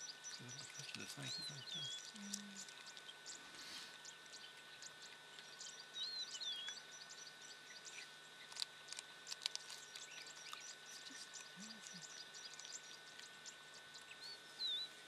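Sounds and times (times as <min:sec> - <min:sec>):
animal chewing and crunching: 0:08.4 - 0:13.3.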